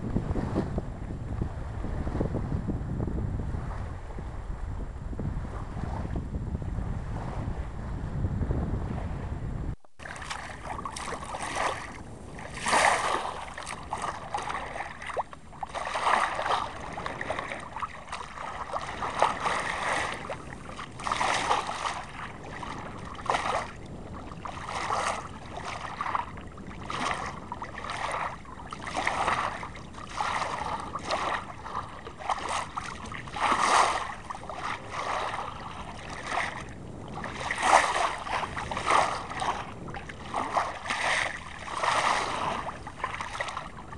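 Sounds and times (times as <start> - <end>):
water splashing along boat hull: 9.8 - 43.9.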